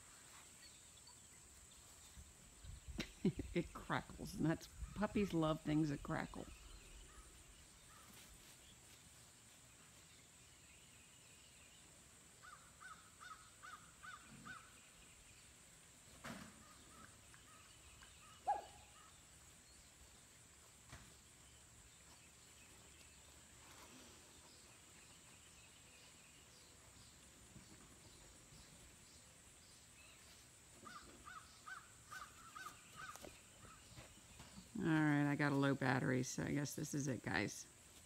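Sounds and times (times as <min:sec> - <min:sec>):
puppy yipping: 0:18.4 - 0:18.8.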